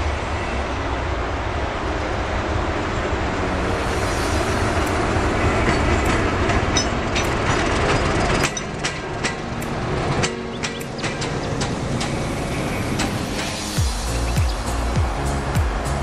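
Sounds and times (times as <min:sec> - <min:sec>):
diesel train rumbling past: 0:00.0 - 0:16.0
wheels clicking on rail joints: 0:04.6 - 0:15.9.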